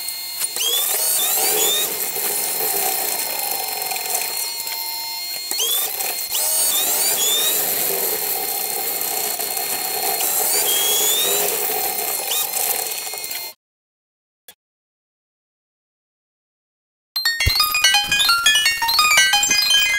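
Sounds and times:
constant high tone: 0:17.2 - 0:19.9.

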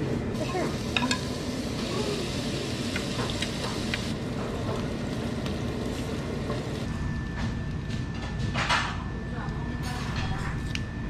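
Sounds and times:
meat sizzling on a grill: 0:00.4 - 0:06.9.

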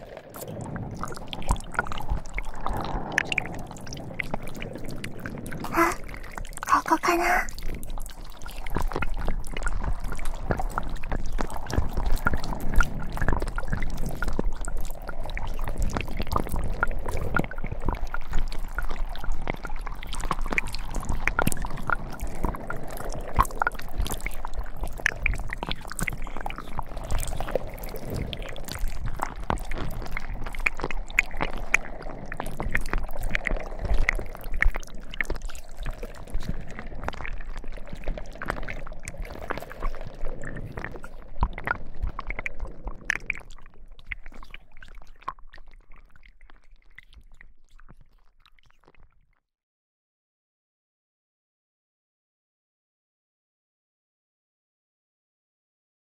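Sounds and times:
slime squelching: 0:05.7 - 0:06.0.

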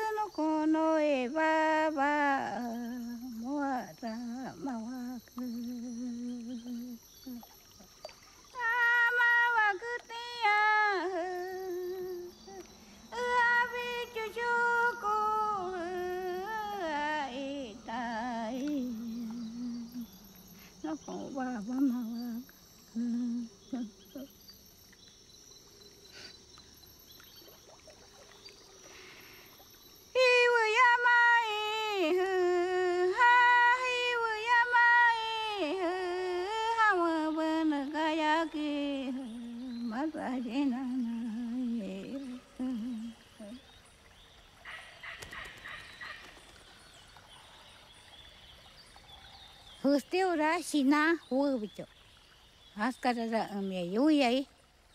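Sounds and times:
lower voice singing: 0:00.0 - 0:07.5, 0:08.6 - 0:20.2, 0:20.8 - 0:24.3, 0:30.2 - 0:43.6.

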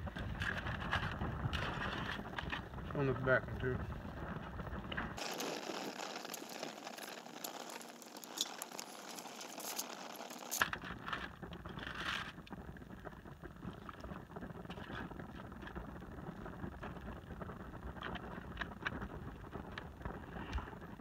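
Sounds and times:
wind rumbling on microphone: 0:00.0 - 0:05.4, 0:10.6 - 0:21.0
small crackles and clicks: 0:00.0 - 0:21.0
aluminium foil crinkling: 0:05.2 - 0:12.5.

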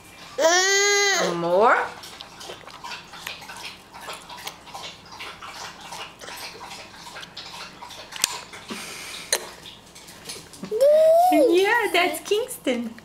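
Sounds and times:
baby smacking and sucking: 0:02.0 - 0:04.6.

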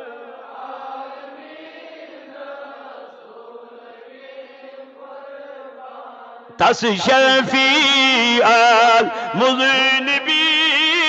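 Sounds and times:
group chanting softly: 0:00.0 - 0:06.8.

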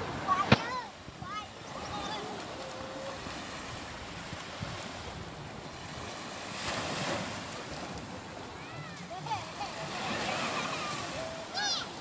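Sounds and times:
wind on microphone: 0:00.0 - 0:08.9
waves washing on shore: 0:00.0 - 0:12.0.

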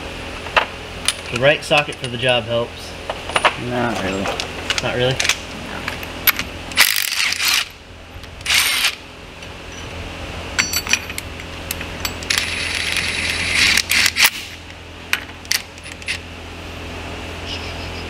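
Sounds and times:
metal tools clinking: 0:01.1 - 0:02.3, 0:03.3 - 0:07.6, 0:10.6 - 0:14.3.

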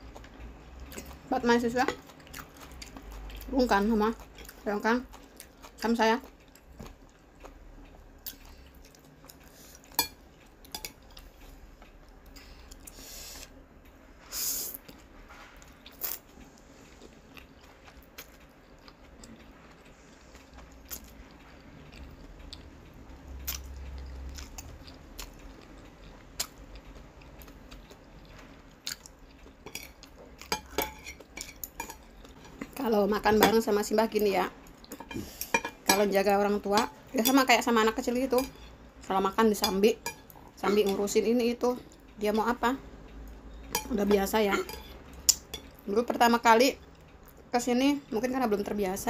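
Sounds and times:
person chewing: 0:00.0 - 0:01.3, 0:01.9 - 0:03.5, 0:04.2 - 0:13.4, 0:14.7 - 0:32.8.

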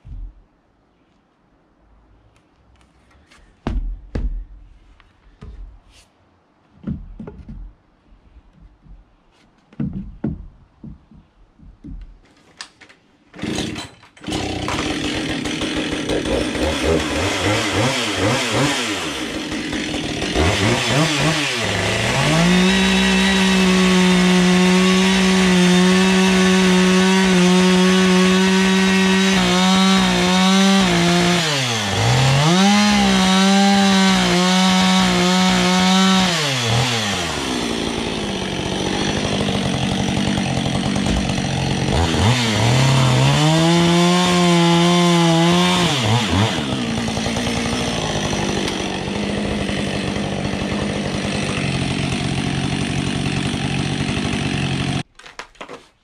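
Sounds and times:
knocks and thumps: 0:03.6 - 0:04.7, 0:06.8 - 0:07.8, 0:08.5 - 0:12.4, 0:41.0 - 0:41.4
chainsaw cutting wood: 0:13.4 - 0:55.1.

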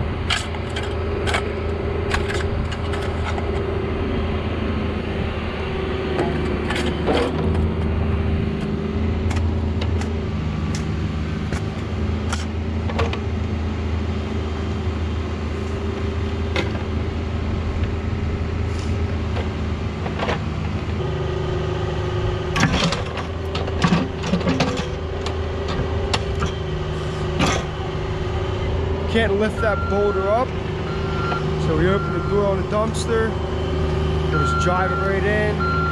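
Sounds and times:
diesel excavator engine running: 0:00.0 - 0:35.9
bucket scraping and clanking: 0:00.3 - 0:03.6, 0:06.2 - 0:07.8, 0:22.6 - 0:25.0.

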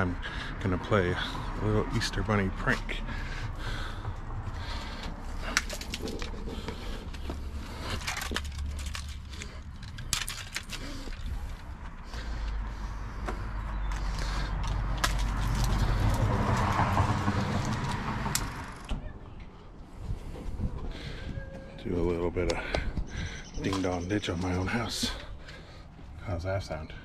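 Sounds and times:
wind buffeting microphone: 0:19.4 - 0:24.0.

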